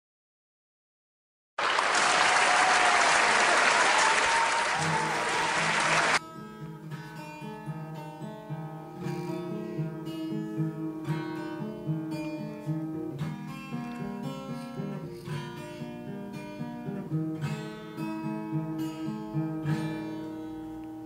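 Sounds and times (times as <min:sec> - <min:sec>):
loud applause: 0:01.6 - 0:06.2
acoustic guitar playing: 0:04.8 - 0:21.0.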